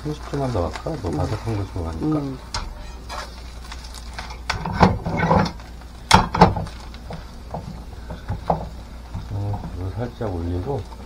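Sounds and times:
steady low hum: 0.0 - 11.0
spatula scraping pan: 1.3 - 5.6
frying pan shifted on stove grate: 2.5 - 9.8.

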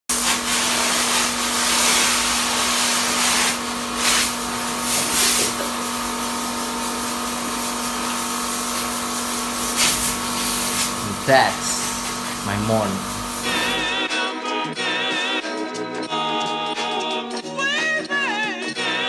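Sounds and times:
hiss of spray from hose: 0.1 - 13.8
electric pump humming: 0.1 - 14.0.

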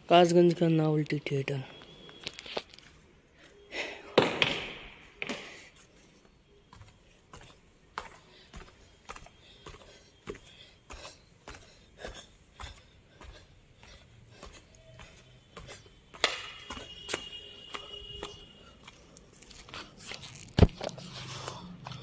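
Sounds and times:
footsteps on steps: 1.8 - 22.0.

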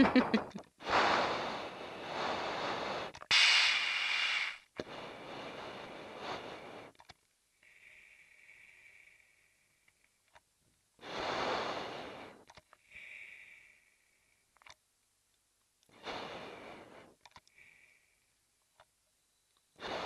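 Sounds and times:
breathing through oxygen mask: 0.8 - 10.0, 11.0 - 14.4, 15.9 - 18.3, 19.8 - 20.0.

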